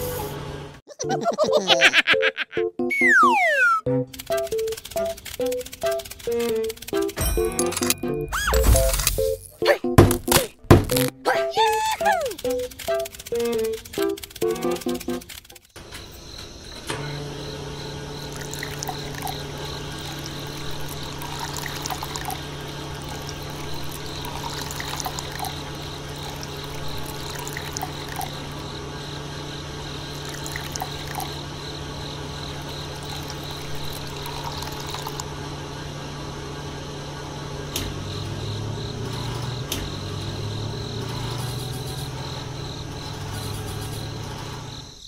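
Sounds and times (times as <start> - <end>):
water pump humming: 16.2 - 40.9
water pouring from pipe: 18.3 - 28.5, 30.1 - 31.4, 32.9 - 35.3.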